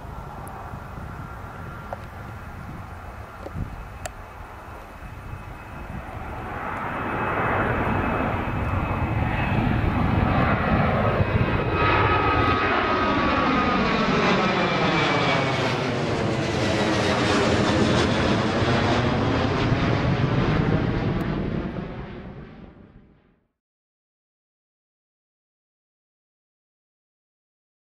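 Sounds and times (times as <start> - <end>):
faint jet whine: 0.0 - 23.5
jet airliner engine roar: 0.0 - 23.5.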